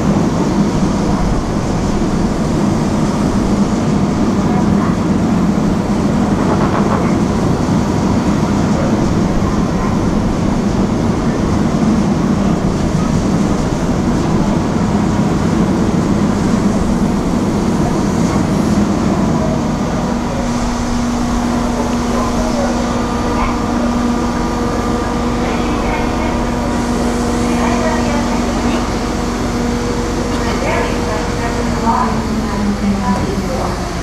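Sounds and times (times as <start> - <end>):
higher hum: 0.0 - 34.0
ship machinery rumbling: 0.0 - 34.0.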